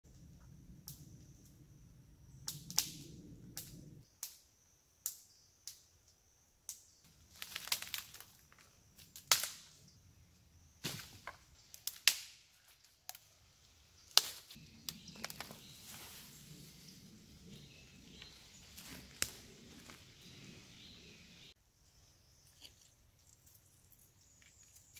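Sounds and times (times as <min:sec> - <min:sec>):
dead branches cracking and snapping: 0:02.5 - 0:03.0, 0:07.2 - 0:09.7, 0:10.8 - 0:12.4, 0:14.1 - 0:15.6, 0:18.8 - 0:20.0
brush rustling: 0:14.1 - 0:20.8.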